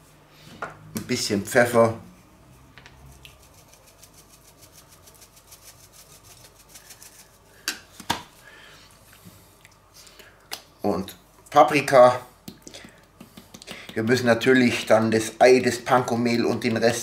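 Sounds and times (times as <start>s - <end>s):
pepper shaker rattling: 3.0s - 7.5s.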